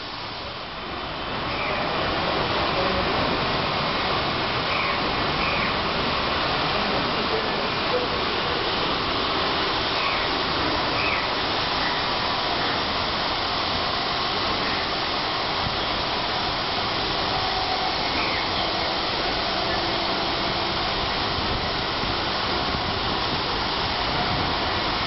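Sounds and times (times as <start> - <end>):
high-pressure water spray hissing: 0.0 - 25.0.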